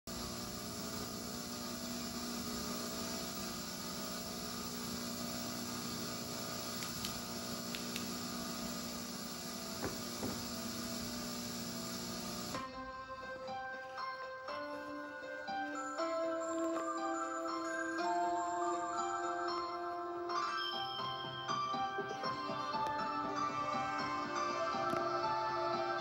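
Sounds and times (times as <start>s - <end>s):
videotape hum and hiss: 0.1s - 12.7s, 21.9s - 26.0s
faint clicks: 6.8s - 8.1s.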